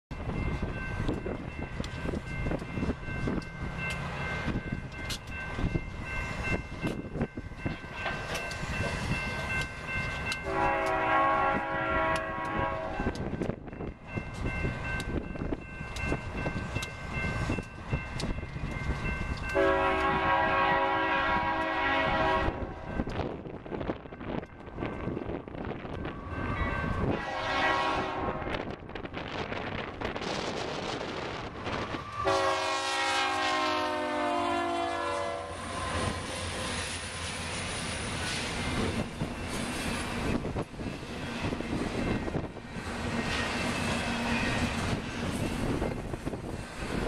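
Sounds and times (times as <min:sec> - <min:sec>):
locomotive air horn: 0:10.4 - 0:13.2, 0:19.6 - 0:22.8, 0:27.1 - 0:28.6, 0:32.2 - 0:36.1.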